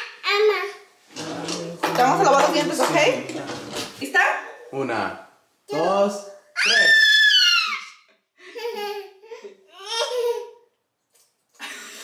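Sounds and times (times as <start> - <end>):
baby laughing: 7.5 - 10.7.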